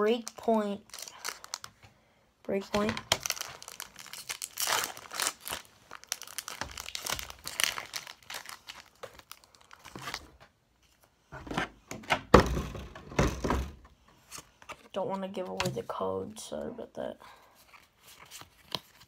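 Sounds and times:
foil wrapper crinkling and tearing: 0.1s - 1.8s, 2.7s - 10.4s.

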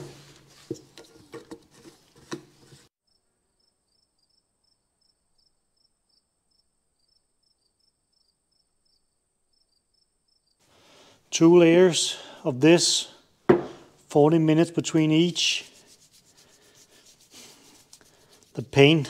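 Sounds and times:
crickets chirping: 3.1s - 10.6s
tin and tools knocking on wood: 13.5s - 13.8s.

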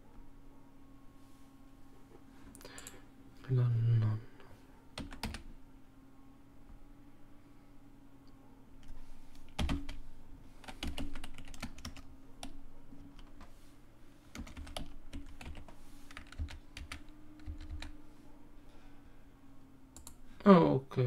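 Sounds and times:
faint steady hum: 0.0s - 21.0s
keyboard keys clicking: 5.0s - 5.5s, 8.8s - 10.0s, 10.6s - 13.5s, 14.3s - 17.9s.

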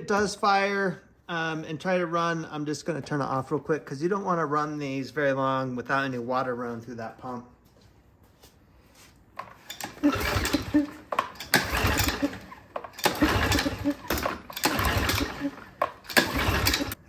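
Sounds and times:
small engine pull-start whir: 9.4s - 17.0s.

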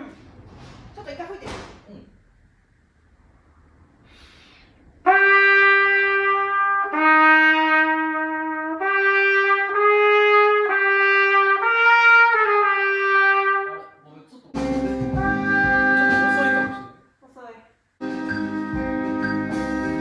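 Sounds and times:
trumpet playing held notes: 5.0s - 13.9s, 14.6s - 17.0s, 18.0s - 20.0s.

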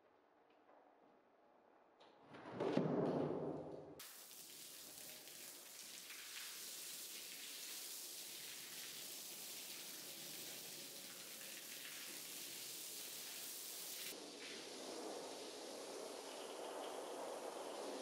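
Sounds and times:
water spraying onto a rug: 4.0s - 18.0s.

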